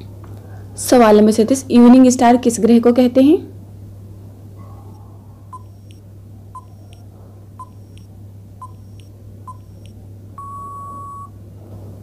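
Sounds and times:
low steady hum: 0.0s - 12.0s
long steady beep: 4.9s - 6.0s, 6.6s - 7.0s, 7.6s - 11.4s
countdown timer beeps: 5.6s - 6.0s, 6.6s - 7.0s, 7.6s - 11.3s.

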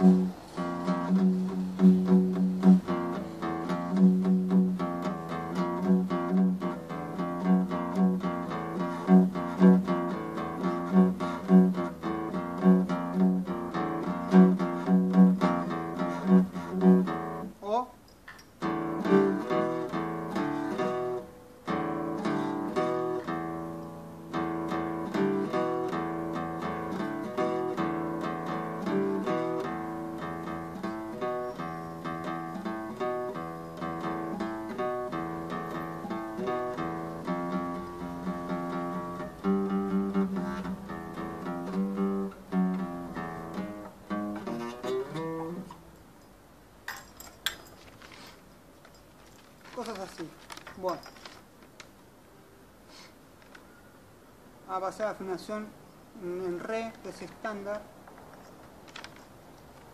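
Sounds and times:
acoustic guitar riff: 0.0s - 46.5s.

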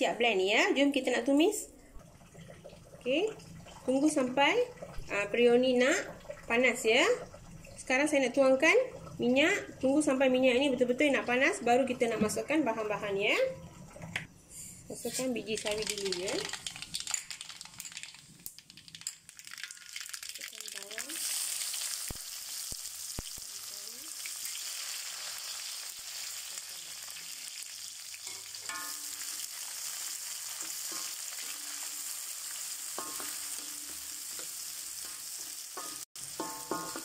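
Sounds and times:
seeds crackling in hot oil: 15.0s - 37.0s
vegetables sizzling in oil: 15.0s - 37.0s.

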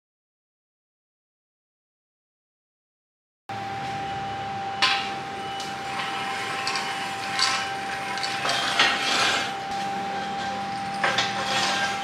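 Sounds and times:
steady high whine: 3.5s - 12.0s
steel bar clanking on roller: 5.8s - 9.6s, 10.3s - 12.0s.

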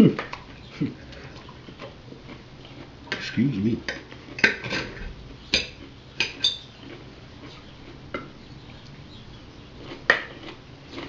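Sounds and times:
cutlery clinking on plates: 5.6s - 6.7s.

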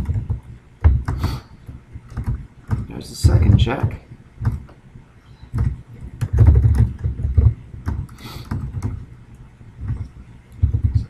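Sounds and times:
computer keyboard typing: 0.0s - 1.4s, 2.1s - 4.7s, 5.5s - 9.0s, 9.8s - 11.0s.

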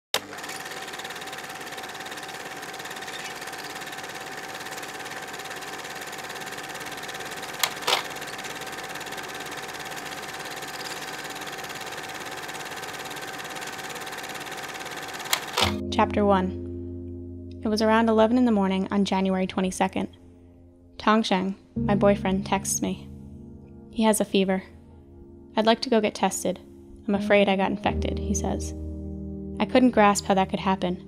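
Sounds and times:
film projector whirring rattle: 0.2s - 15.8s
sharp clicks: 7.5s - 8.6s, 15.2s - 15.8s.

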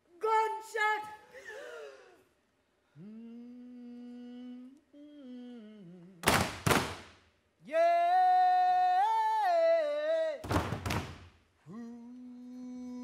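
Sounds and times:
person humming: 2.9s - 6.3s, 11.6s - 13.0s.

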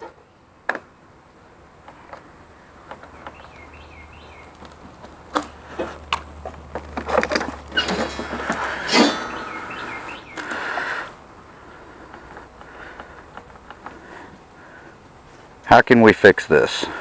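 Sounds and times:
bird chirping: 2.5s - 4.8s, 7.7s - 11.1s.

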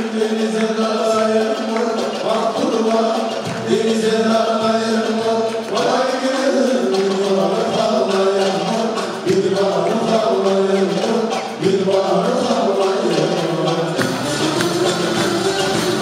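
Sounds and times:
lutes and violins playing melody: 0.0s - 16.0s
men singing in unison: 0.0s - 16.0s.

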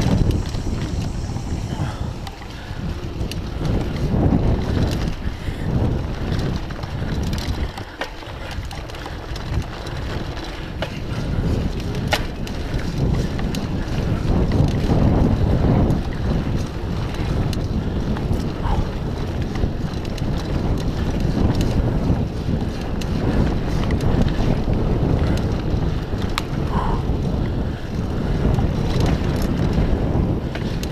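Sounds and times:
bike clicks and rattles: 0.0s - 30.9s
tyres rumbling on dirt: 0.0s - 30.9s
wind buffeting microphone: 0.0s - 30.9s.

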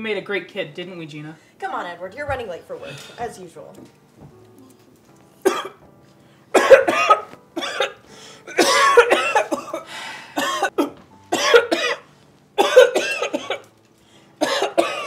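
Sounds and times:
man coughing and choking: 5.4s - 5.8s, 6.6s - 9.8s, 10.4s - 12.0s, 12.6s - 13.6s, 14.4s - 15.0s.

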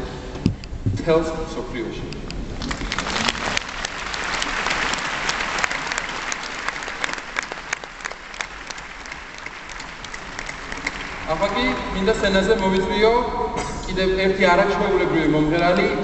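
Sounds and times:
large audience applauding: 2.6s - 12.8s.

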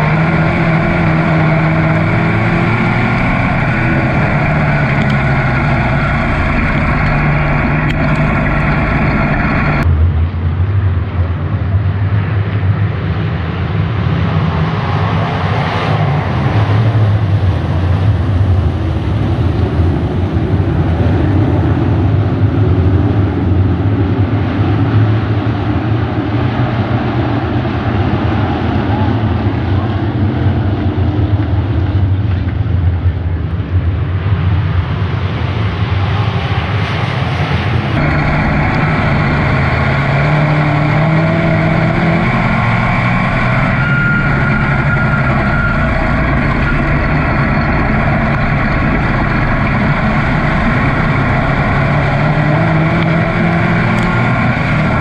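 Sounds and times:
car engine revving: 0.0s - 9.9s, 37.7s - 55.0s
race car engines droning: 0.0s - 55.0s.

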